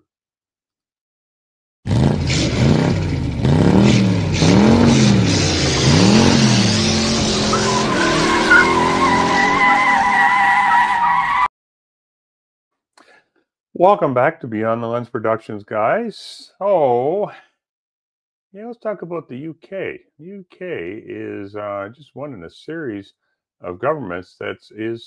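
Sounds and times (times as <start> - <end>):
car engine revving: 1.9 - 11.1
tyres squealing: 5.4 - 11.5.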